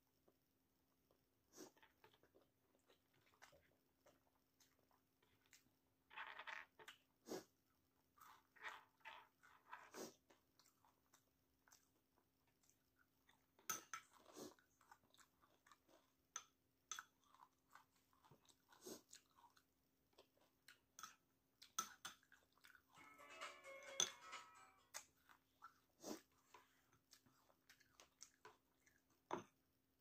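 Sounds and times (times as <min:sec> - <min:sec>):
person chewing: 0:12.6 - 0:23.0, 0:24.9 - 0:29.3.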